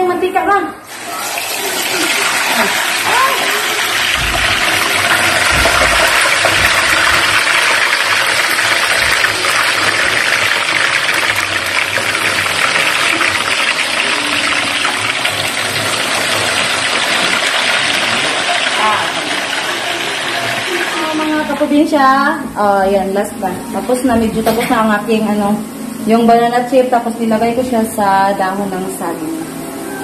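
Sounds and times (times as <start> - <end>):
low bumps: 4.1 - 7.5.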